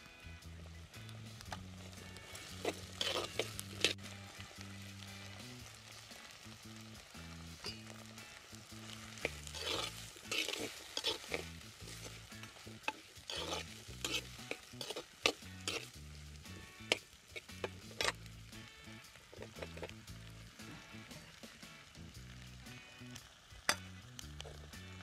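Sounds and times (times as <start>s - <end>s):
food sizzling: 0.0s - 25.0s
ladle scraping a clay pot: 2.2s - 4.1s, 8.8s - 16.0s.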